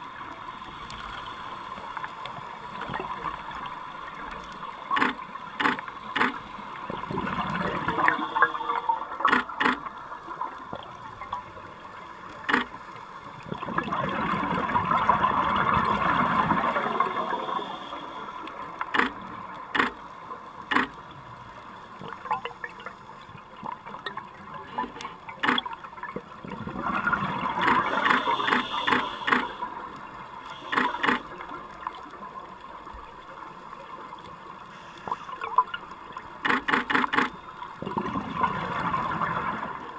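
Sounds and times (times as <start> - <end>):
regulator bubbles rushing underwater: 0.0 - 19.8, 20.6 - 34.2, 37.4 - 39.9
camera and strobe clicks: 4.4 - 6.6, 8.4 - 9.9, 12.4 - 12.8, 18.0 - 20.0, 20.7 - 21.0, 25.4 - 25.7, 27.6 - 29.7, 30.5 - 31.4, 36.4 - 37.4.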